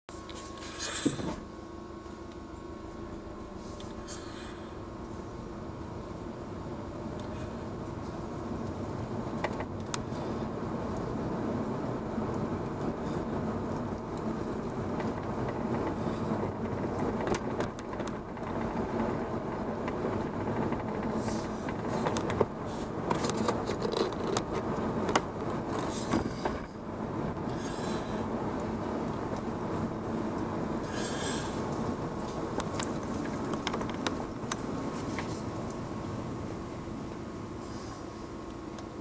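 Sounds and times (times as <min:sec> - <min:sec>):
clicks and rattles: 0:23.1 - 0:26.7, 0:32.6 - 0:35.3.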